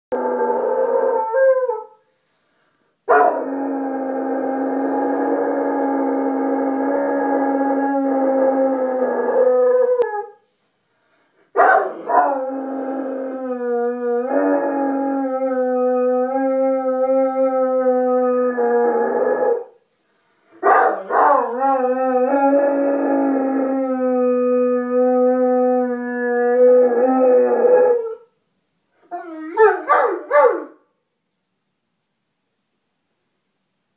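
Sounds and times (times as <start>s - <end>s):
dog howling: 0.1s - 1.9s, 3.1s - 10.4s, 11.6s - 19.7s, 20.6s - 28.2s.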